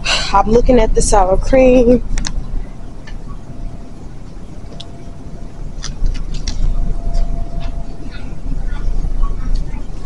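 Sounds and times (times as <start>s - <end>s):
faint steady hum: 0.0s - 10.0s
phone handling rumble: 4.6s - 10.0s.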